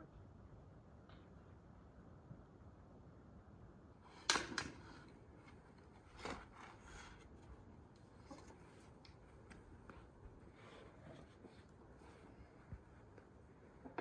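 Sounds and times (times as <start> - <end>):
soft scrapes and rustles: 5.0 - 14.0.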